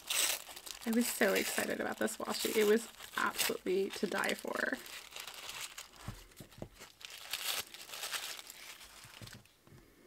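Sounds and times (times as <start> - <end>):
paper rustling and tearing: 0.0 - 9.5.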